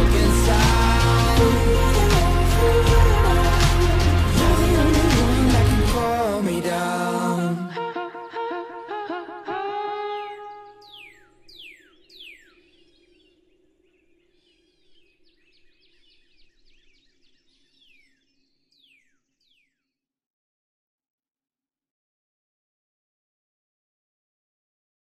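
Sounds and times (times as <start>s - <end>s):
song chord: 0.0s - 7.7s
birds twittering: 10.0s - 19.9s
bird whistles: 10.4s - 12.6s.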